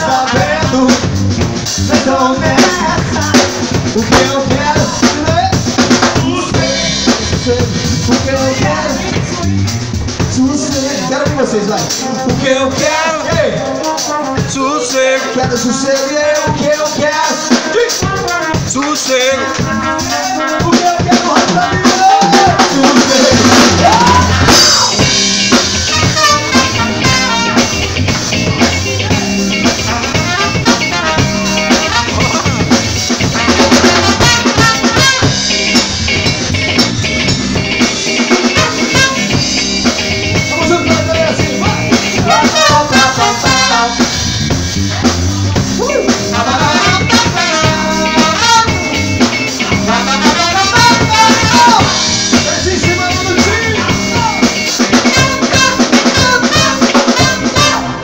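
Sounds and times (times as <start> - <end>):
drum kit: 0.0 - 58.0
electric guitar: 0.0 - 58.0
trumpet and trombone: 19.2 - 24.9, 25.8 - 28.1, 29.6 - 35.8, 38.4 - 39.5, 42.2 - 44.4, 46.2 - 49.0, 49.7 - 52.0, 55.0 - 58.0.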